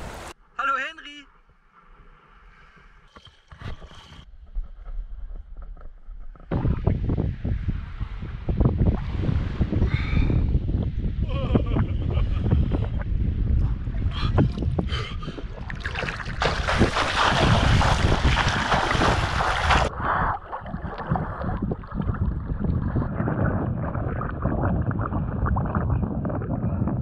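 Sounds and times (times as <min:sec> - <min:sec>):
wind noise on microphone: 0:04.2 - 0:27.0
water splashing and sloshing: 0:14.3 - 0:27.0.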